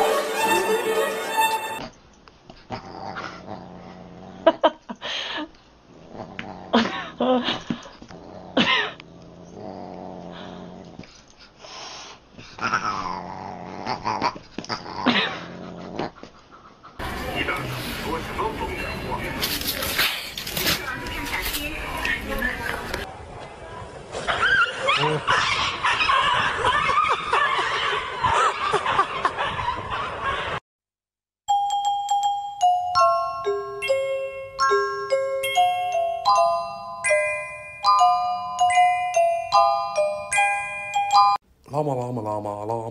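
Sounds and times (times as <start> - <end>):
high rising-and-falling cries: 0.0 - 1.8
growling: 2.7 - 4.6, 5.9 - 6.9, 8.1 - 11.1, 12.5 - 16.2
dense noisy background: 17.0 - 24.2
glockenspiel-like chiming melody: 31.5 - 41.4.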